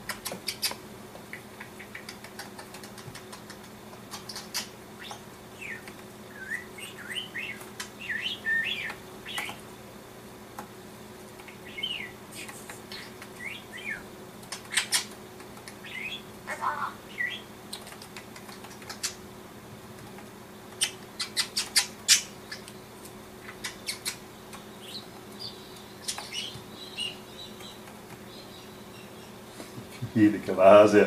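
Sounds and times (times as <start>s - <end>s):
budgerigar chirping: 4.2s - 9.6s, 11.6s - 12.2s, 12.9s - 14.1s, 15.8s - 17.5s, 23.4s - 29.4s.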